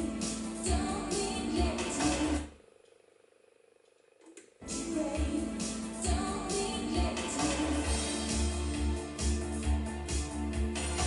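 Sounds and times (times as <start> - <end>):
music from vinyl record: 0.0 - 2.5, 4.6 - 11.0
pulsing bass beat: 5.1 - 11.0.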